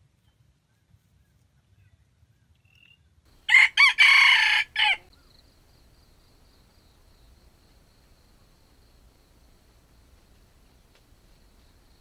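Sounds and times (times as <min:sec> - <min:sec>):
rooster crowing: 0:03.4 - 0:05.1.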